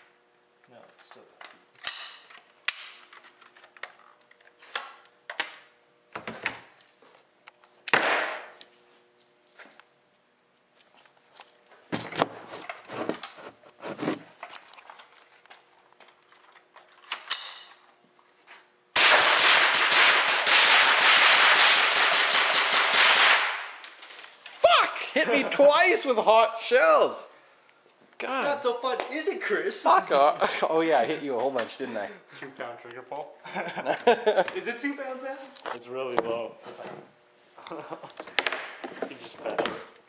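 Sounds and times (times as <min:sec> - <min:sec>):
rifle shots: 0:19.0 - 0:23.7.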